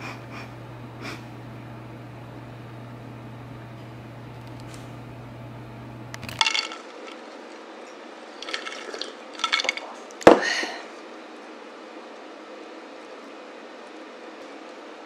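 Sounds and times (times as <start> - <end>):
ice cubes clinking in glass: 6.2 - 7.3, 8.3 - 10.4.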